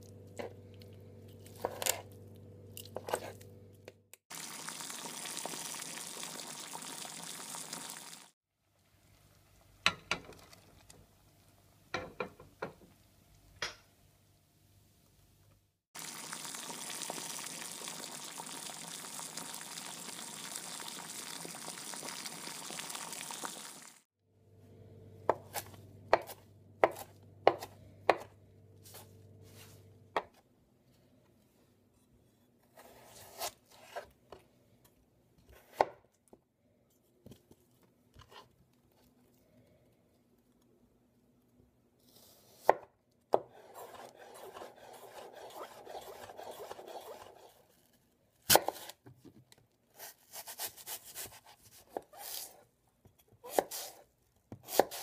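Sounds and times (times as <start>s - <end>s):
knife chopping on cutting board: 25.3s - 28.3s, 54.5s - 55.0s.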